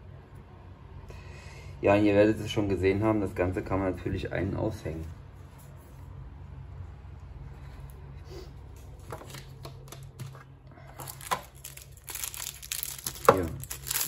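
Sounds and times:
plastic bag crinkling: 10.9 - 14.0.

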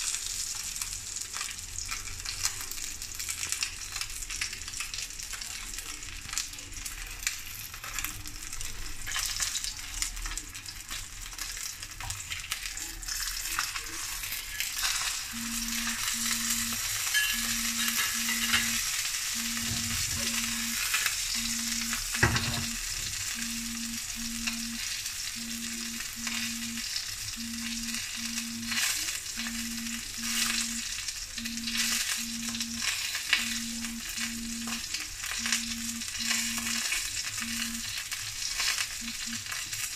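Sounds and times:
fish sizzling in oil: 0.0 - 39.9
low double beep: 15.4 - 18.8, 19.4 - 20.8, 21.4 - 22.8, 23.4 - 24.8, 25.4 - 26.8, 27.4 - 28.8, 29.4 - 30.8, 31.4 - 32.8, 33.4 - 34.8, 35.4 - 37.9.

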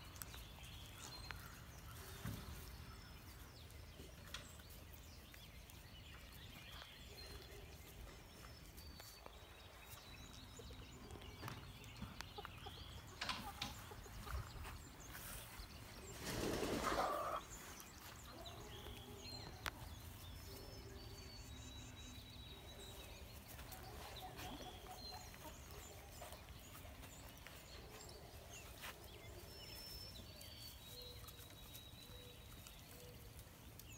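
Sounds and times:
small birds chirping: 0.0 - 33.9
puppies rustling in straw: 22.7 - 33.9.

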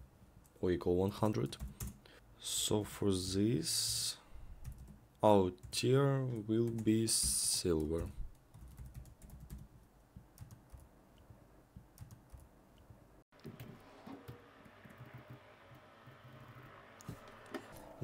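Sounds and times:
faint keyboard typing: 1.1 - 2.1, 4.6 - 13.8.

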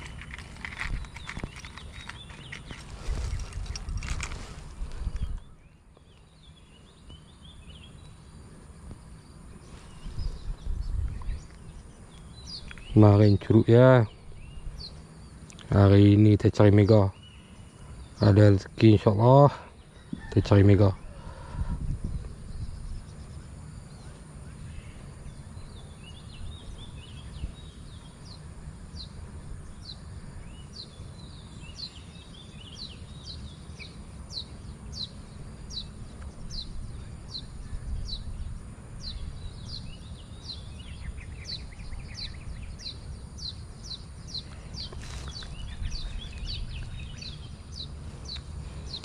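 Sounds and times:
birds chattering: 0.0 - 49.0
low steady rumble: 21.0 - 49.0.

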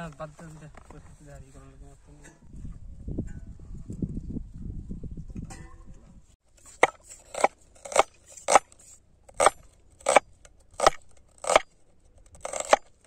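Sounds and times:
cleaver chopping on wooden board: 6.8 - 8.7, 9.3 - 11.7, 12.4 - 12.9.

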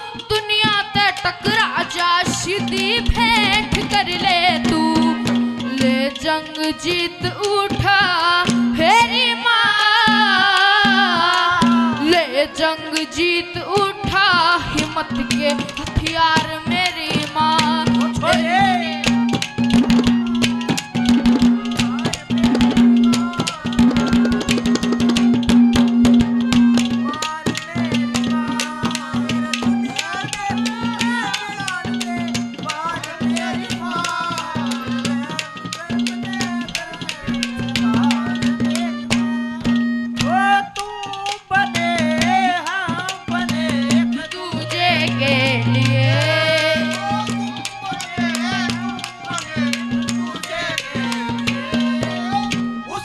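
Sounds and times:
harmonium: 0.0 - 53.0
hand drum fast strokes: 13.8 - 53.0.

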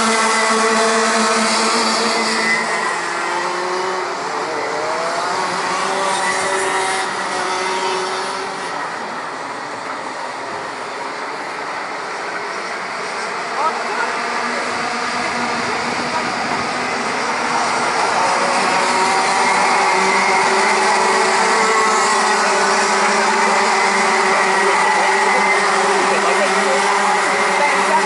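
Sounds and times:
racing kart engines: 0.0 - 28.0.

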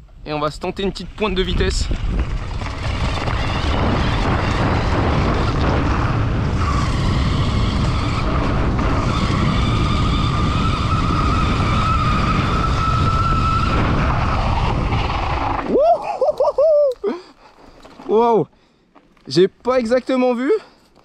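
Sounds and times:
wind rumble on microphone: 0.0 - 16.0
tyres rolling on gravel: 0.8 - 10.5, 17.4 - 21.0
electric motor whine: 2.6 - 14.2.

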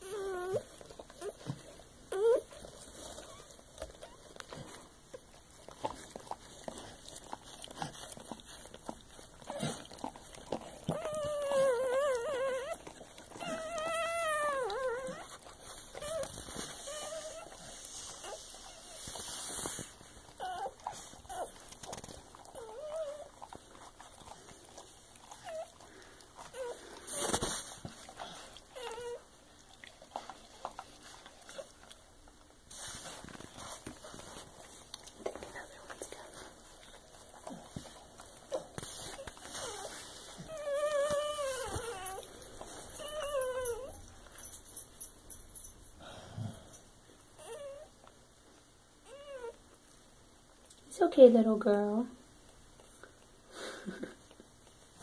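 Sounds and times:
dog whimpering: 0.0 - 4.8, 7.0 - 29.4, 38.3 - 44.2, 47.4 - 48.1, 49.0 - 49.6.

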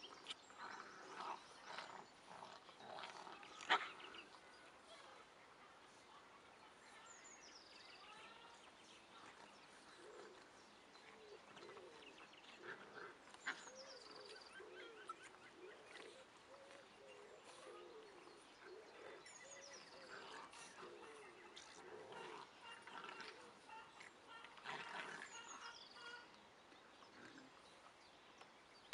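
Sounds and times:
birds singing trills: 6.5 - 28.9
puppies grunting and whining: 11.3 - 26.2.

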